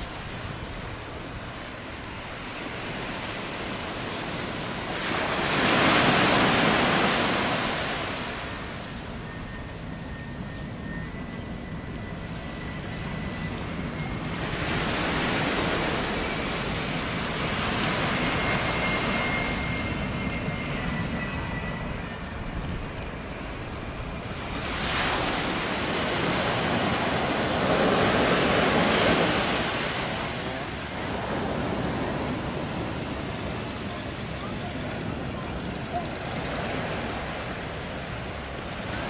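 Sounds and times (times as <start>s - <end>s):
faint jet engine whine: 0.0s - 39.0s
surf against rocky seawall: 24.0s - 39.0s.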